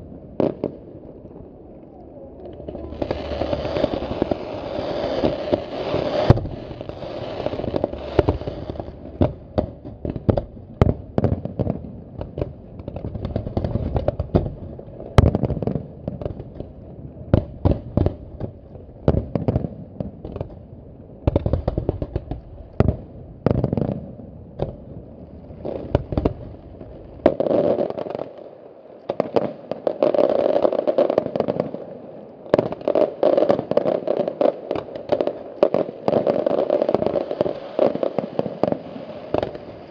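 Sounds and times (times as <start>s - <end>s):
fireworks bangs: 0.0s - 16.6s, 32.5s - 39.9s
fireworks crackling: 0.0s - 20.6s, 21.2s - 39.9s.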